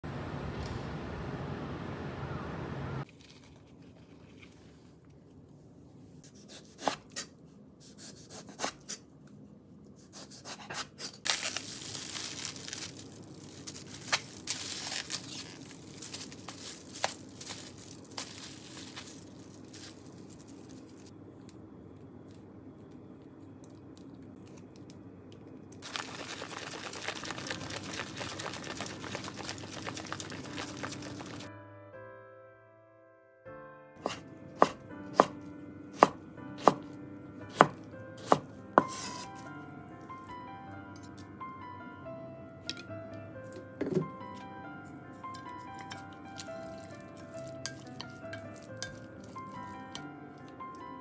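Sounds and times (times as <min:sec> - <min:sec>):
plastic film crinkling: 0:11.2 - 0:21.2, 0:25.8 - 0:31.5, 0:45.3 - 0:50.5
chopsticks stirring sticky food: 0:25.9 - 0:31.4, 0:45.3 - 0:49.9.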